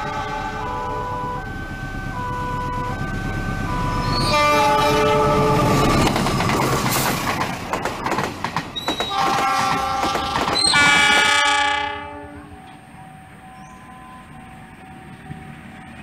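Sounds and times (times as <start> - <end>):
locomotive horn: 0.0 - 7.0, 9.0 - 14.4
train wheels clattering over rails: 3.0 - 11.8.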